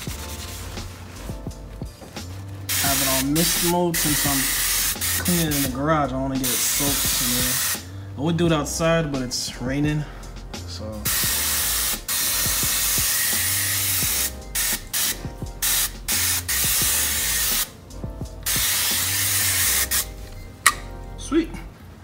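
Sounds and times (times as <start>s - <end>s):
hose nozzle mist spray hissing: 2.3s - 5.8s, 6.4s - 7.8s, 11.1s - 17.7s, 18.5s - 20.8s.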